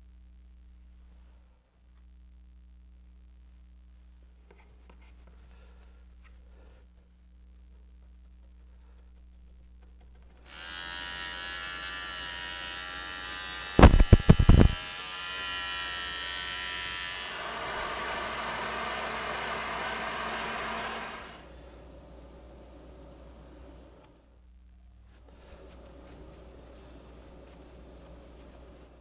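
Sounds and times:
handheld power tool running: 0:10.4 - 0:21.5.

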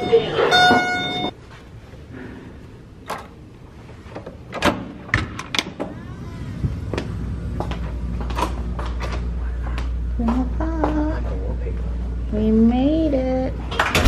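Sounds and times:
door opening: 0:00.0 - 0:01.3
low hum: 0:00.0 - 0:14.0.

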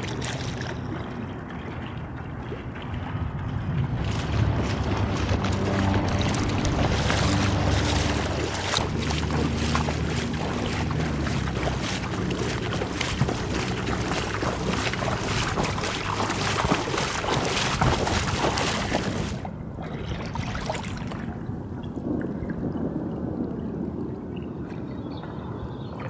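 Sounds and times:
river water splashing: 0:00.0 - 0:22.2
water trickling: 0:00.0 - 0:25.5.

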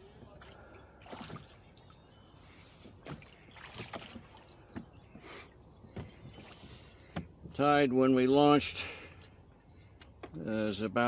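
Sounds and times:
oars knocking in oarlocks: 0:02.9 - 0:07.6.

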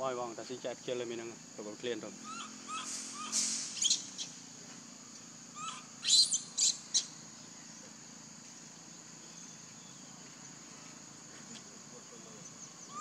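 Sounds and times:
high-pitched chirping: 0:02.2 - 0:04.4, 0:05.6 - 0:07.2.

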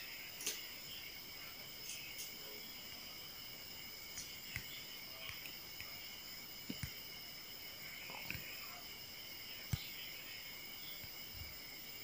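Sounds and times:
soft clicks and taps: 0:04.1 - 0:06.0, 0:06.6 - 0:07.0.

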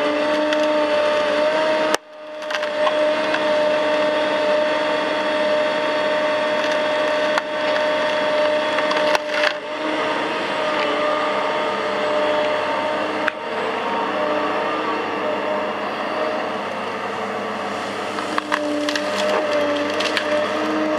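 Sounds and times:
excavator engine and hydraulics whining: 0:00.0 - 0:20.9
wood cracking sharply: 0:01.9 - 0:03.0, 0:06.5 - 0:09.6, 0:18.2 - 0:20.6.

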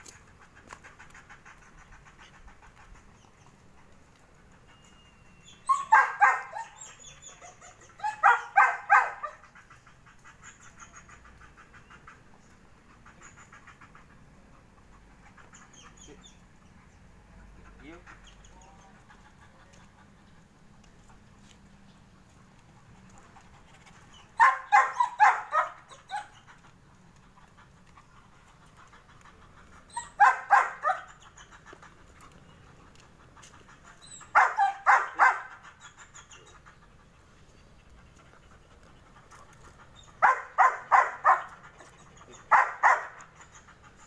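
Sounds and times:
dog barking: 0:05.7 - 0:06.8, 0:08.0 - 0:09.4, 0:24.4 - 0:26.3, 0:30.0 - 0:31.1, 0:34.3 - 0:35.6, 0:40.2 - 0:41.5, 0:42.4 - 0:43.2.

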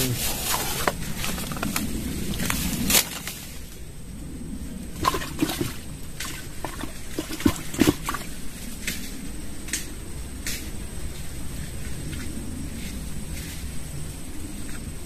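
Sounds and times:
low outdoor rumble: 0:00.0 - 0:15.0
water splashes and drips: 0:05.0 - 0:08.4.

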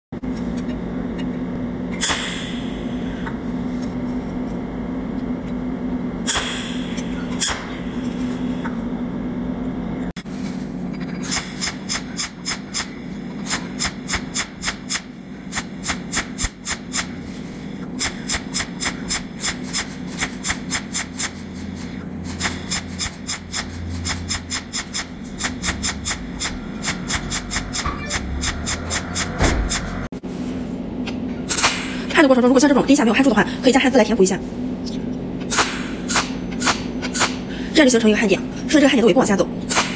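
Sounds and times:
steady low hum: 0:00.2 - 0:39.9
welding machine electric snaps: 0:02.0 - 0:02.6, 0:06.3 - 0:07.8, 0:11.3 - 0:17.2, 0:18.0 - 0:29.9, 0:31.5 - 0:32.0, 0:35.5 - 0:37.4, 0:39.7 - 0:39.9.

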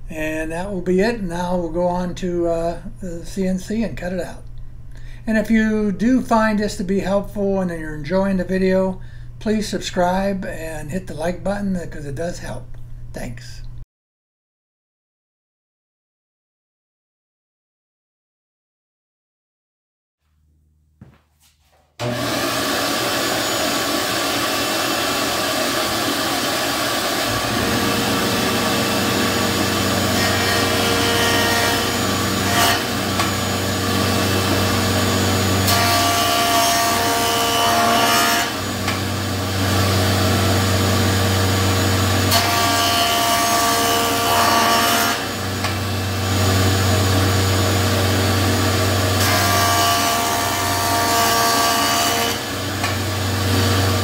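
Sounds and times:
jointer cutting a board: 0:22.0 - 0:54.0
jointer running: 0:22.0 - 0:54.0.

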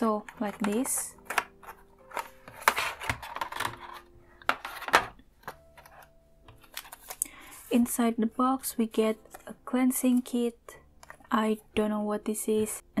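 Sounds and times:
packaging rustling: 0:00.2 - 0:07.5.

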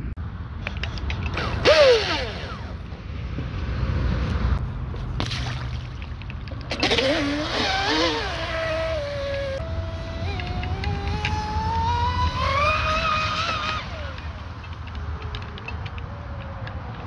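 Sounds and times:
low wind noise: 0:00.0 - 0:17.0
electric motor whine: 0:06.9 - 0:15.3.

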